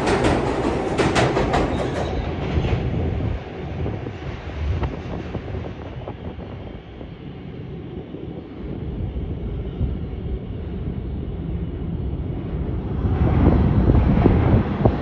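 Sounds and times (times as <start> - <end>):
subway train rumble: 0.0 - 15.0.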